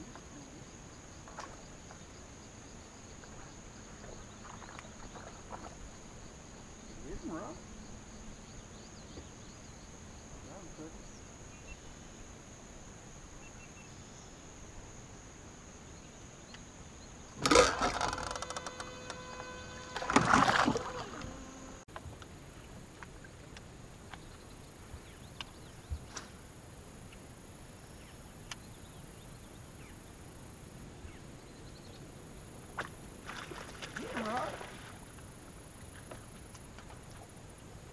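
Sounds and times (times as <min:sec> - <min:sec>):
insects buzzing: 0:00.0 - 0:37.9
faint ticks: 0:25.2 - 0:26.3.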